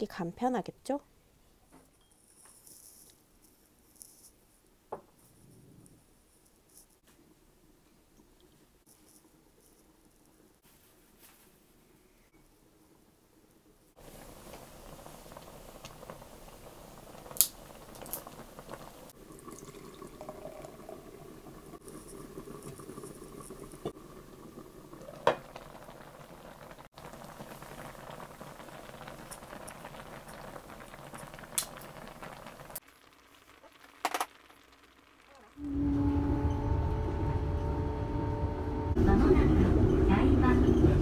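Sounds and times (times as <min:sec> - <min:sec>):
broth bubbling in a pot: 0:13.9 - 0:36.0.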